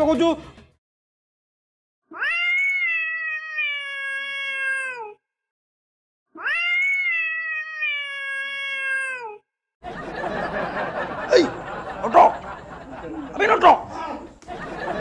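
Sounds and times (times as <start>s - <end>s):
cat meowing: 2.1s - 5.2s, 6.3s - 9.4s.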